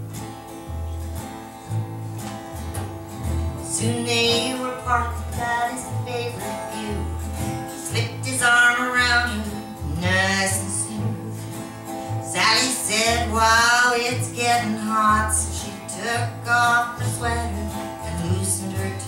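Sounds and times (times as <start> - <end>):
double bass plucking: 0.0 - 19.0
strummed acoustic guitar: 0.0 - 19.0
woman singing: 3.6 - 11.6, 12.2 - 19.0.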